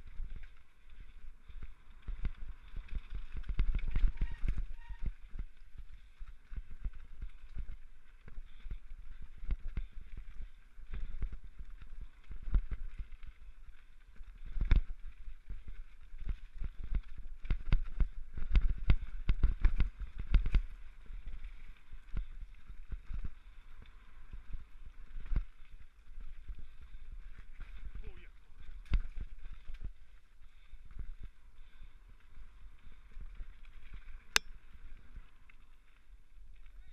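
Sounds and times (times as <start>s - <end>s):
bike rattling and thudding: 0.0s - 23.7s.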